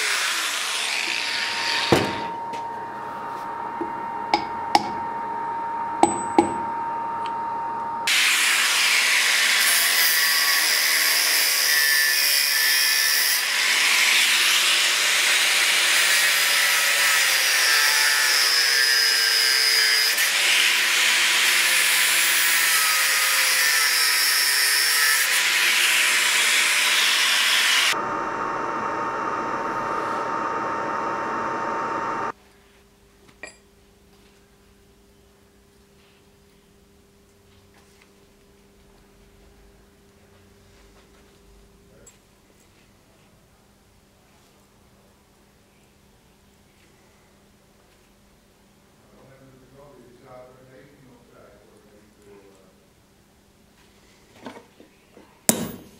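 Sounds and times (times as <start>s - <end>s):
angle grinder cutting metal: 0.0s - 2.3s, 8.1s - 32.3s.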